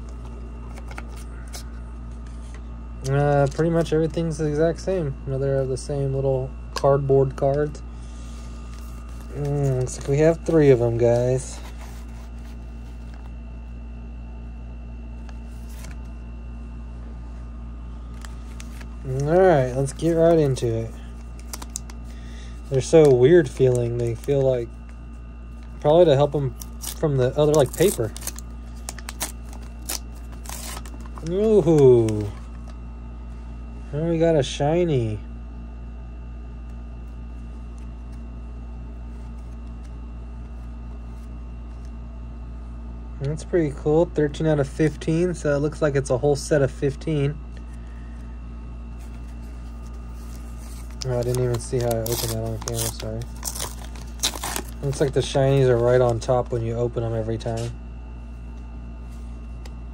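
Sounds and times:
low room hum: 0.0 - 59.9
foil packs crinkling: 18.2 - 24.6, 25.6 - 32.4, 49.1 - 56.6.

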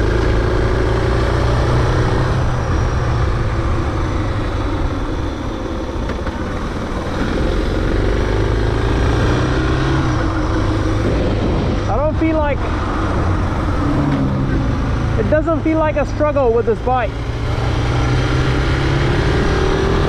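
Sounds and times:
motorcycle engine running: 0.0 - 20.0
wind rush on microphone: 10.0 - 16.0.

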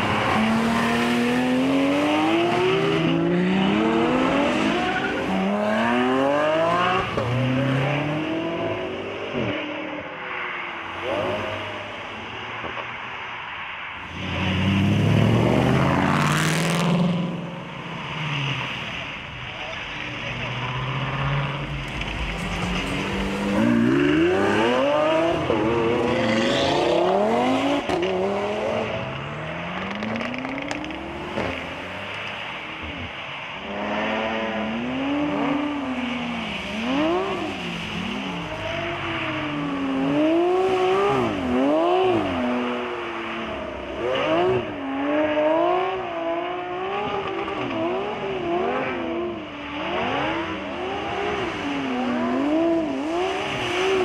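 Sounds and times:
sports car engine revving: 20.2 - 32.2.

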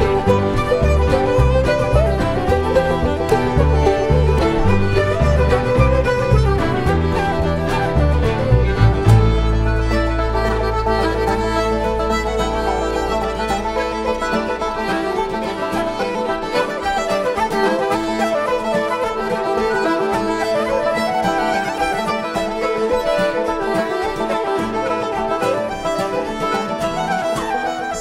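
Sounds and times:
upright bass: 0.0 - 14.1
acoustic guitar: 0.0 - 28.0
banjo: 0.0 - 28.0
fiddle melody: 0.0 - 28.0.

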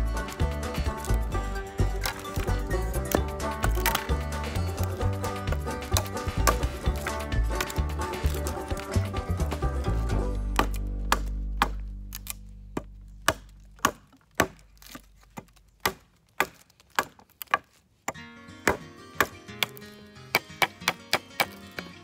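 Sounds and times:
background music: 0.0 - 12.6, 18.1 - 22.0
hatchet chopping wood: 0.2 - 22.0.

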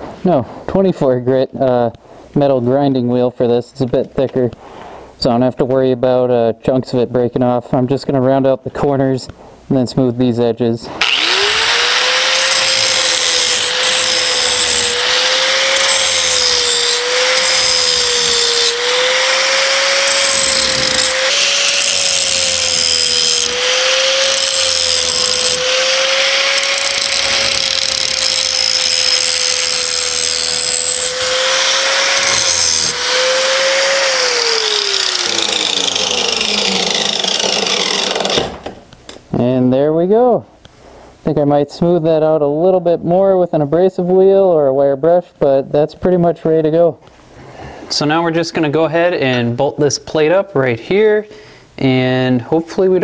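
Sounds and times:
grinder spinning down: 11.0 - 38.7
angle grinder grinding steel: 11.0 - 38.8.

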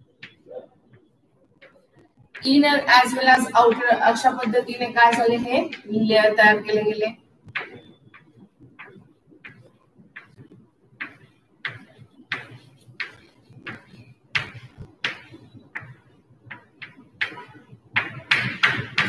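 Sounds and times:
chalk tapping and scraping on blackboard: 1.6 - 2.6, 7.4 - 19.0.

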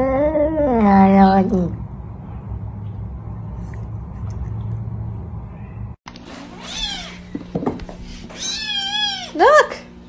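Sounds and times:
low steady hum: 0.0 - 10.0
cat meowing: 6.6 - 7.2, 8.3 - 9.4.

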